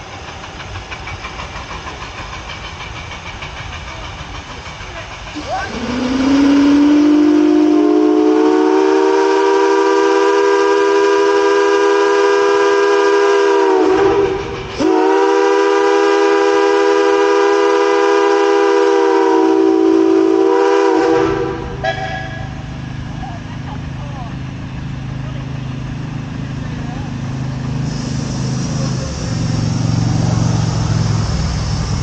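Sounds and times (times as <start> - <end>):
steam whistle blasts: 5.6 - 22.7.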